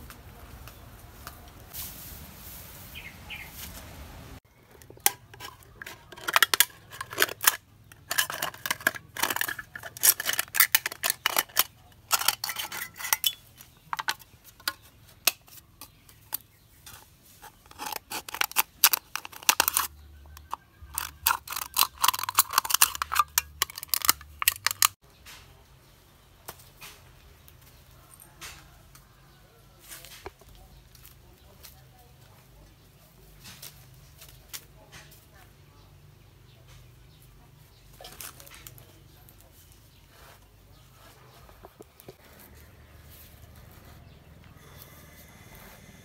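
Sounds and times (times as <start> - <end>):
scissors cutting metal can: 4.9 - 25.0.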